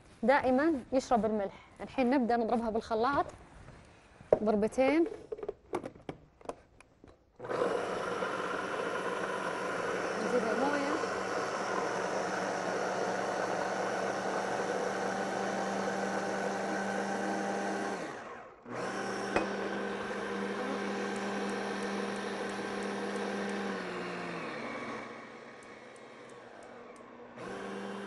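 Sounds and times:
electric hand blender motor hum: 0:07.4 - 0:28.0.

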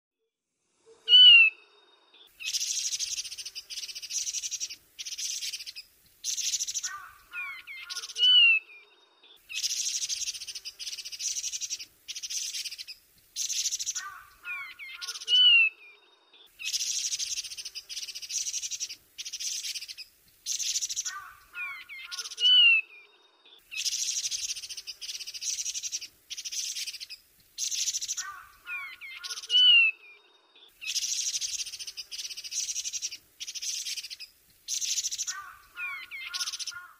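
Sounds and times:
harsh rasping bird chatter: 0:02.4 - 0:08.6, 0:09.6 - 0:15.7, 0:16.6 - 0:22.8, 0:23.8 - 0:29.9, 0:30.9 - 0:36.9
low bird phrase: 0:06.8 - 0:09.5, 0:14.0 - 0:16.6, 0:21.0 - 0:23.8, 0:28.2 - 0:30.8.

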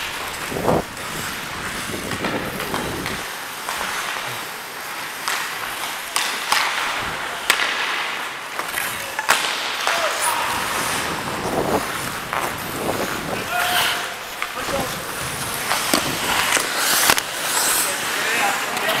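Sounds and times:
wind on microphone: 0:00.0 - 0:03.2, 0:11.0 - 0:13.6
skate blades scraping ice: 0:00.0 - 0:19.0.

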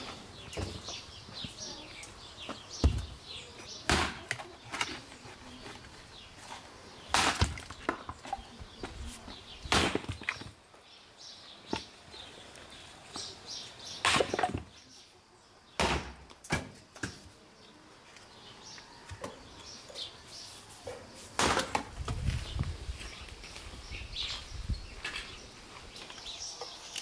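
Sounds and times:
small birds chirping: 0:00.0 - 0:15.9, 0:16.8 - 0:27.0
axe splitting firewood: 0:03.9 - 0:05.0, 0:07.1 - 0:08.4, 0:09.6 - 0:10.5, 0:14.0 - 0:14.7, 0:15.8 - 0:17.2.

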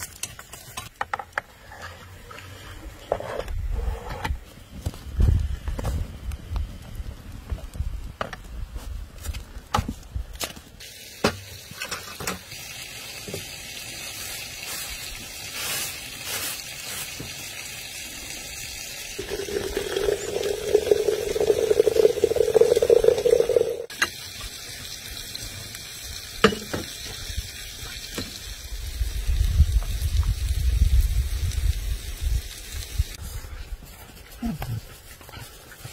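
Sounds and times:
hot water pouring into teapot: 0:17.6 - 0:25.5
tea splashing into glasses: 0:19.2 - 0:23.9.

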